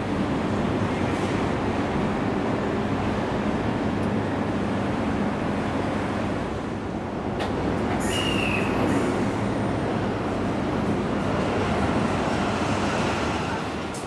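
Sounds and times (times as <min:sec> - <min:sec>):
short high squeal: 0:08.0 - 0:09.0.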